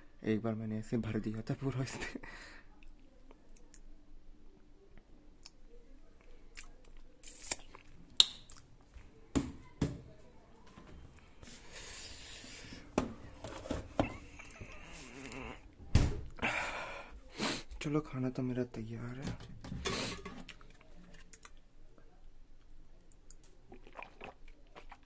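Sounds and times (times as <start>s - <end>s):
dishes knocking and clattering: 12.9s - 14.3s, 19.2s - 20.5s.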